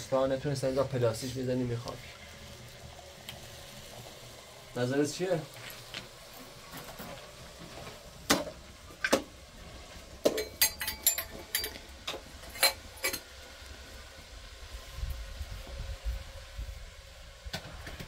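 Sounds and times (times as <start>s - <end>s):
metal kettle clinks and knocks: 10.3s - 11.8s.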